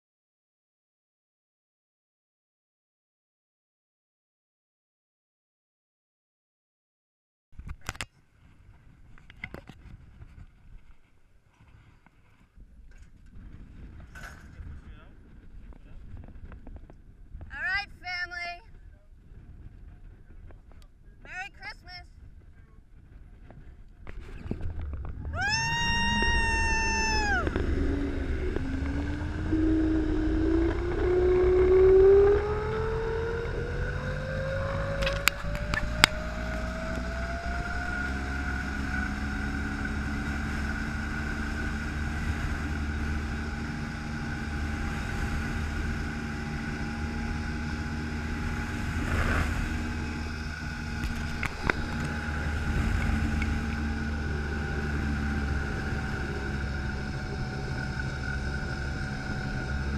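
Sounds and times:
wind rumble on microphone: 7.6 - 59.9
zipline pulleys whining on cable: 24.2 - 59.9.

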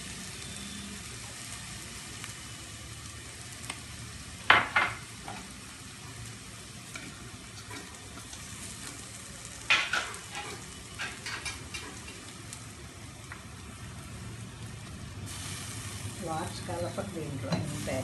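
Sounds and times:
beans sizzling in a pan: 0.0 - 18.0
metal spatula scraping a pan: 9.7 - 12.3.

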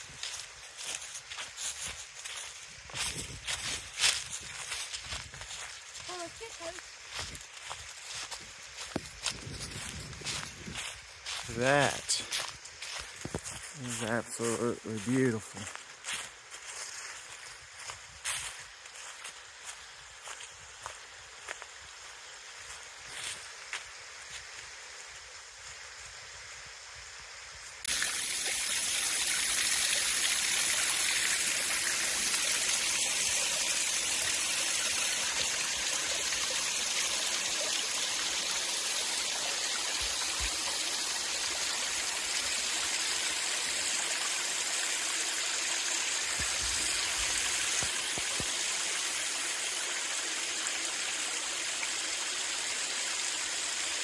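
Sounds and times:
water rushing over rocks: 27.9 - 54.0.

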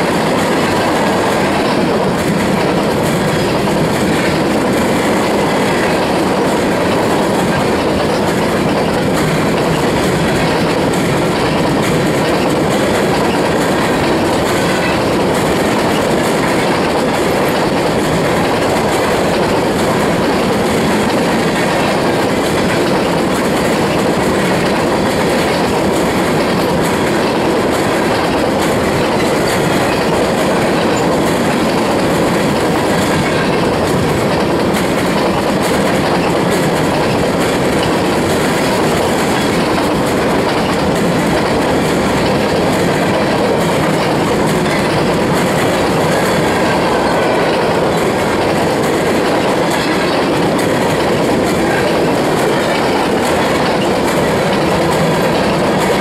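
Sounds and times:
train wheels rushing on rail: 0.0 - 56.0
wheels clicking over track: 0.0 - 56.0.

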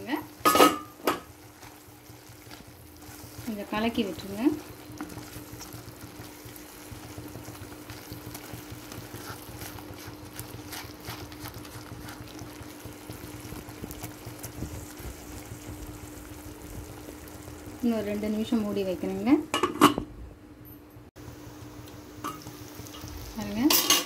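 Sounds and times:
spatula stirring bubbling gravy: 0.0 - 17.8
spatula scraping pan: 0.2 - 15.4.

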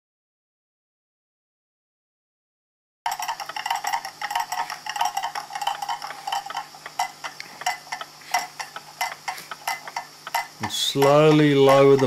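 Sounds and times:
clock ticking: 3.1 - 12.0.

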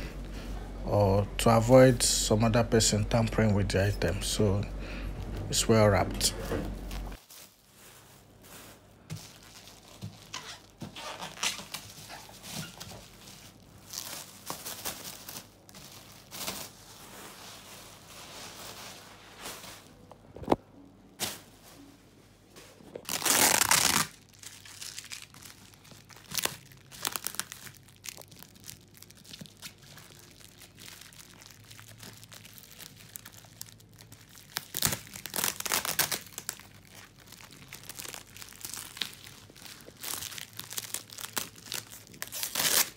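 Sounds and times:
plastic wrap tearing and crinkling: 6.8 - 20.6, 22.9 - 42.9.

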